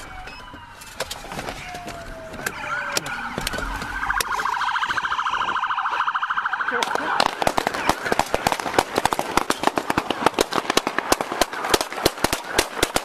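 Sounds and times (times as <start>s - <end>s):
police car siren: 0.0s - 10.4s.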